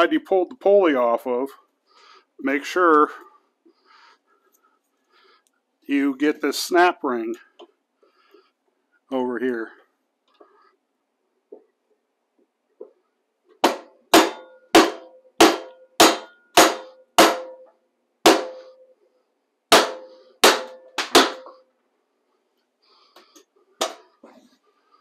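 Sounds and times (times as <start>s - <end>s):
hammer striking wooden block: 13.6s - 18.8s, 19.7s - 21.6s.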